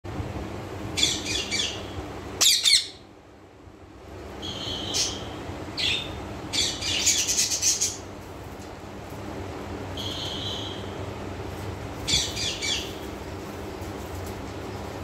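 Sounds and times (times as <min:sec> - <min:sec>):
parakeets calling: 0:01.0 - 0:03.0, 0:04.4 - 0:08.1, 0:10.0 - 0:11.0, 0:12.1 - 0:13.1.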